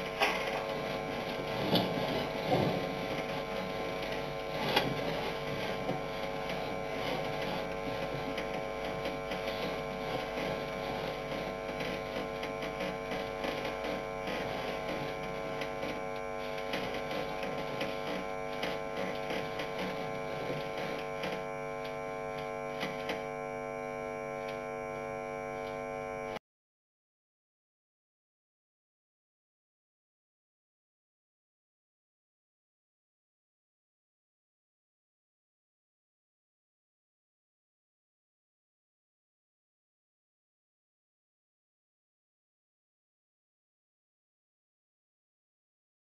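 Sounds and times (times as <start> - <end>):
electrical mains hum: 0.0 - 26.4.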